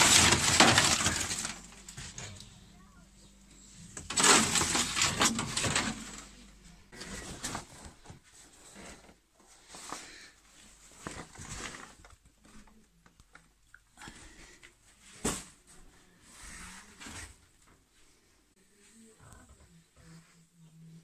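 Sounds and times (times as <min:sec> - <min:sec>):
foil crinkling: 0:00.0 - 0:02.4, 0:04.0 - 0:06.4.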